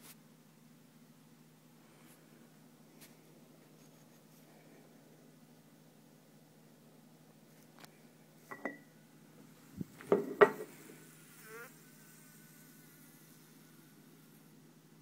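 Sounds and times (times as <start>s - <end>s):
house fly buzzing: 9.6s - 14.5s.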